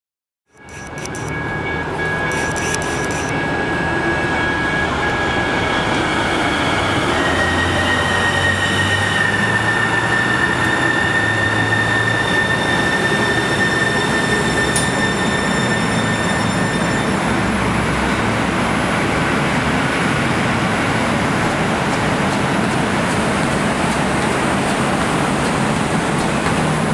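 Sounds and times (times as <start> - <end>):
light rail train whine: 0.5 - 26.9.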